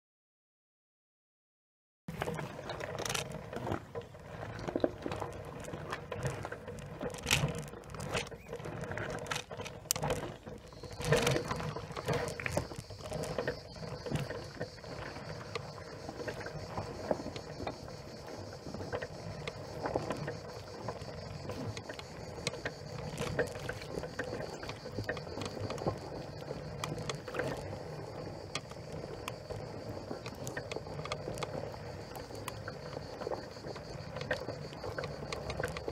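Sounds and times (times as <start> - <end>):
knocks and clatters over stones: 2.1 - 17.7
electric scooter motor whine: 5.7 - 35.9.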